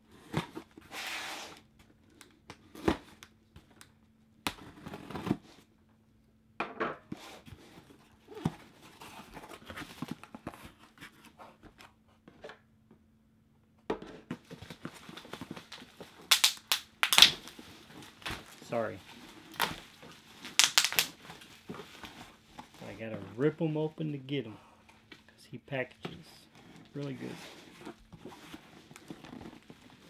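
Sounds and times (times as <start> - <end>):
cardboard tearing and rustling: 4.5 - 5.6, 14.4 - 23.4, 26.4 - 30.0.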